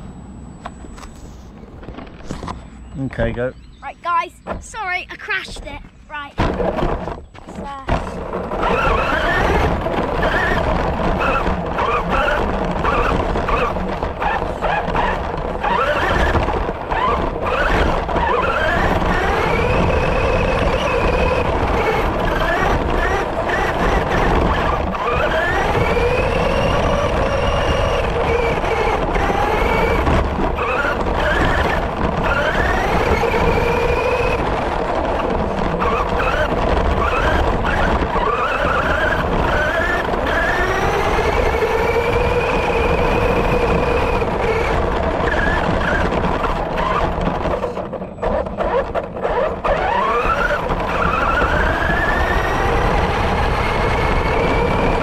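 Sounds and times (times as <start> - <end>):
electric motor whining: 6.4 - 55.0.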